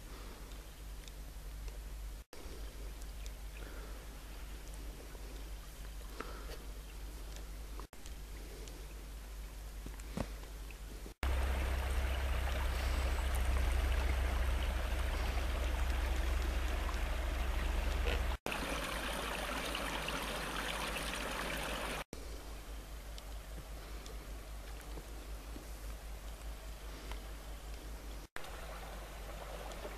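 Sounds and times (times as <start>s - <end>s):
stream flowing water: 10.6s - 22.1s, 28.4s - 29.9s
low rumble: 11.2s - 18.4s.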